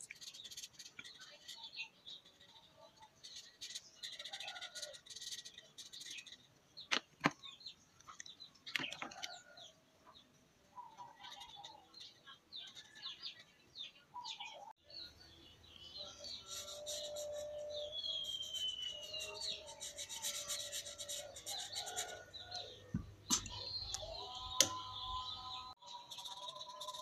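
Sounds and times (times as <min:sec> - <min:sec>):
markers squeaking on paper: 0:00.0 - 0:06.5, 0:11.2 - 0:13.1, 0:16.2 - 0:25.1, 0:25.9 - 0:27.0.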